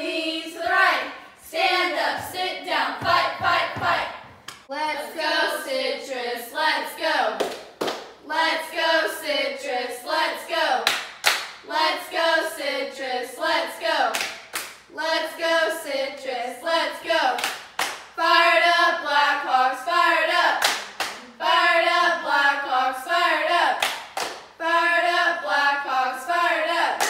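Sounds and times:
girls chanting a cheer: 0.0 - 7.5, 8.2 - 11.0, 11.6 - 24.0, 24.6 - 27.0
sharp hand claps: 7.4 - 8.2, 10.8 - 11.6, 14.1 - 14.8, 17.4 - 18.1, 23.8 - 24.5.

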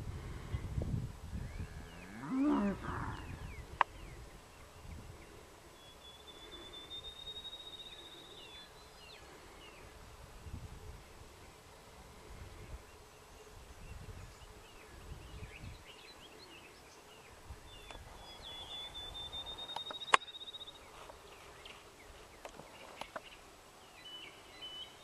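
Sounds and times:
cow mooing: 1.8 - 3.3
faint bird chirps: 3.1 - 11.0, 12.7 - 25.0.

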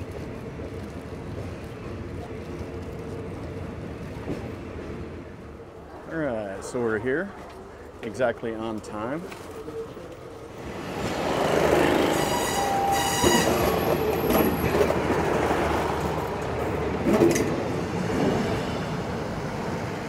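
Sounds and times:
train rumble and hiss: 9.6 - 20.0
high-pitched squeal: 11.6 - 14.5.

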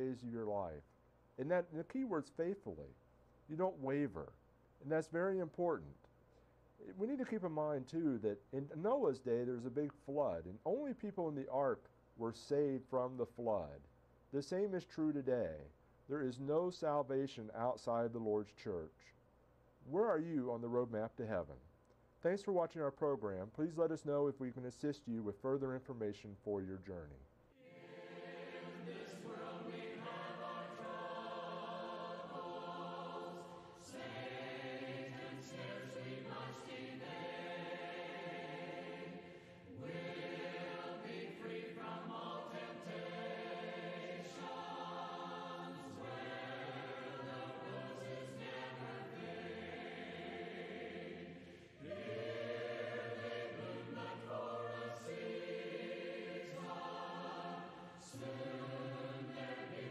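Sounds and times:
choir singing a hymn: 27.6 - 59.9.

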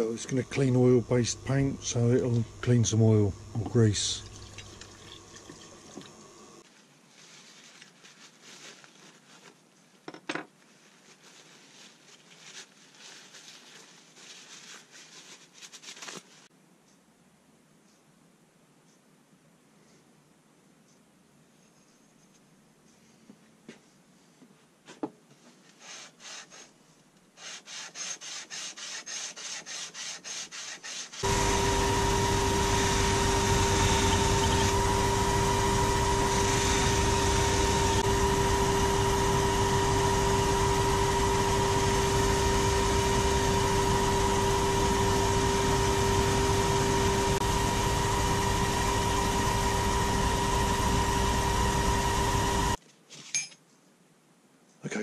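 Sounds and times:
polishing wheel humming: 0.0 - 6.6, 27.7 - 52.8
ratchet rubbing on abrasive board: 27.4 - 31.3.

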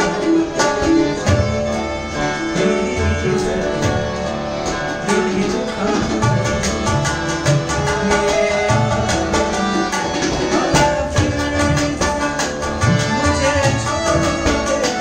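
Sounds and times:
electronic keyboard: 0.0 - 15.0
harmonium: 0.0 - 15.0.

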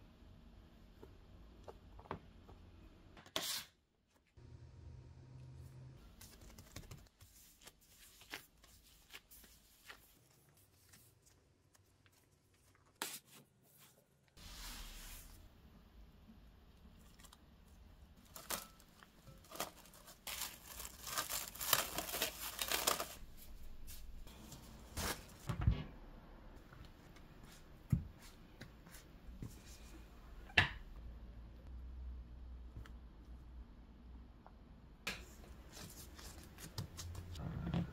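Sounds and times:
cling film crinkling and tearing: 18.2 - 24.0.

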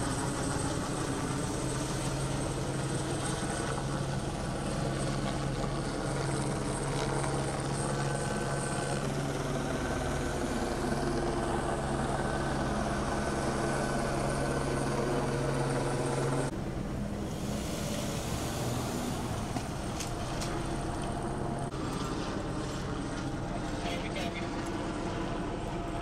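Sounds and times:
helicopter rotor drone: 0.0 - 26.0.

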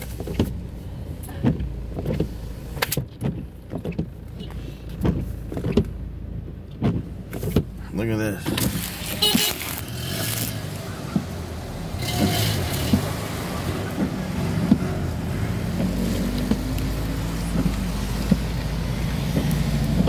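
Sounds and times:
car engine and road hum: 0.0 - 20.0.

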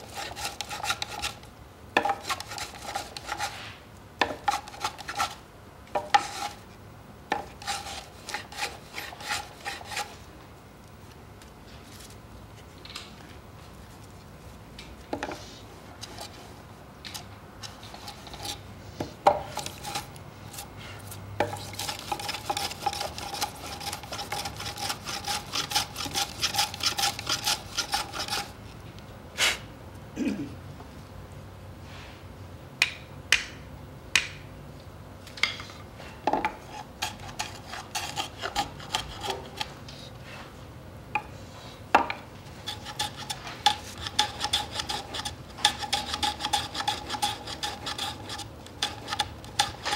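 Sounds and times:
hand plane shaving wood: 0.0 - 1.4, 2.2 - 3.6, 7.5 - 10.1, 21.5 - 28.5, 36.7 - 39.7, 42.6 - 49.9.

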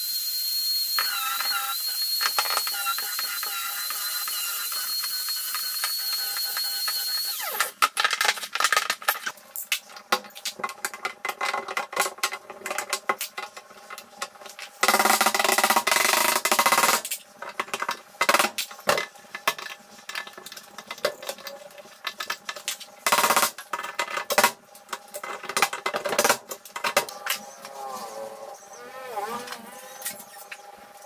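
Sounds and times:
power drill running: 0.9 - 7.7.

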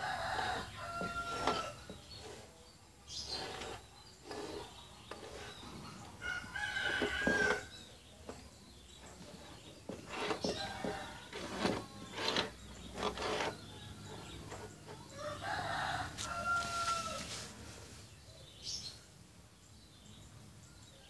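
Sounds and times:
rooster crowing: 0.0 - 1.8, 6.2 - 7.7, 15.1 - 17.4.

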